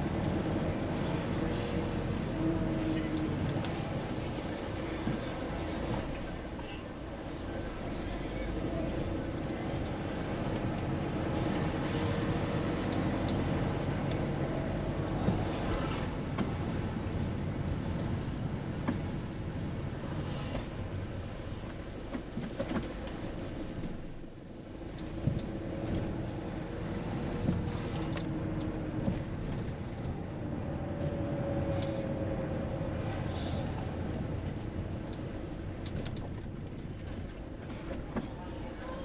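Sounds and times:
traffic rumble: 0.0 - 39.0.

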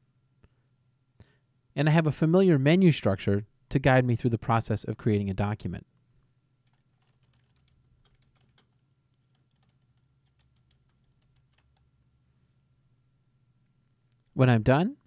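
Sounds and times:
low steady hum: 0.0 - 15.0
faint keyboard typing: 6.6 - 11.9.

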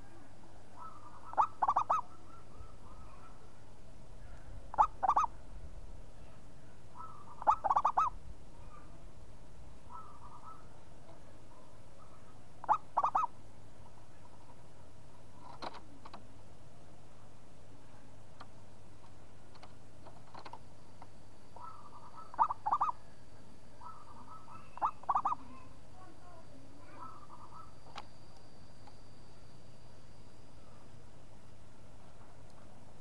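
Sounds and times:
dove cooing: 0.0 - 3.4, 4.7 - 5.4, 7.0 - 8.9, 9.9 - 10.8, 11.5 - 13.3, 21.6 - 23.0, 23.8 - 25.8, 26.8 - 27.8.

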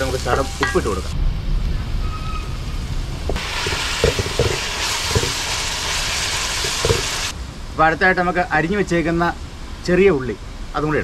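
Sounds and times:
onions sizzling in oil: 0.0 - 1.2, 2.8 - 7.4
spatula scraping pot: 3.4 - 7.3.

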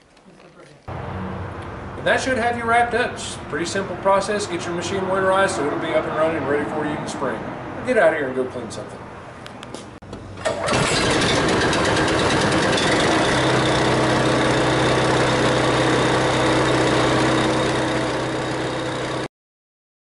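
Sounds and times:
pressure washer engine running: 10.4 - 19.3.

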